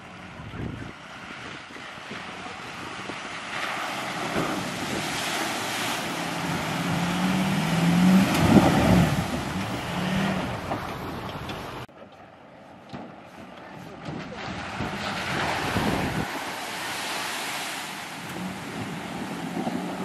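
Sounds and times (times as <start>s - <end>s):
water splashing off tyres: 0.9s - 11.9s, 14.2s - 20.0s
pickup truck engine revving: 2.1s - 11.9s.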